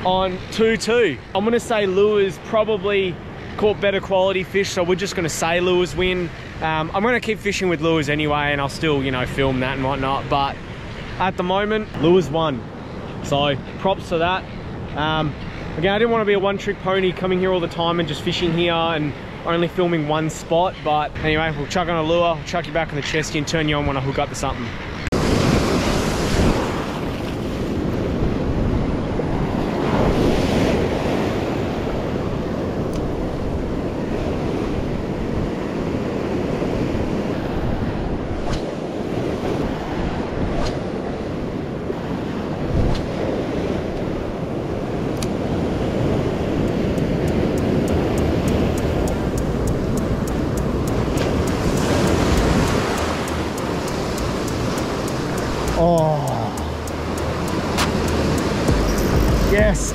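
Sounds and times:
ocean surf breaking on beach: 0.0 - 21.4, 24.5 - 59.9
wind buffeting microphone: 24.8 - 59.9.

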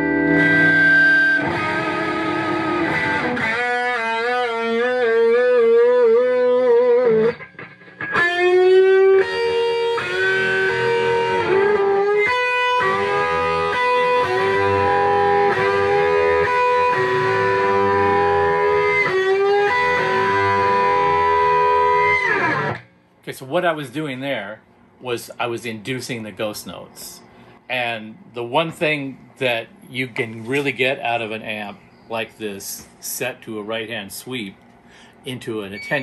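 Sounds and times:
overdriven electric guitar bends: 0.0 - 22.9.

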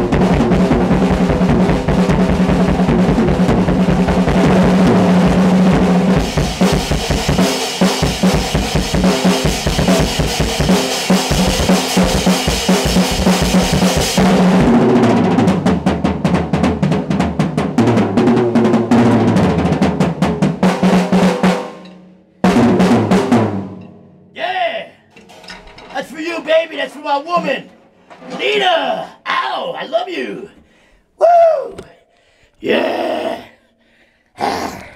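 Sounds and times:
fast drumming: 0.0 - 23.6
tom fills: 19.3 - 32.7.

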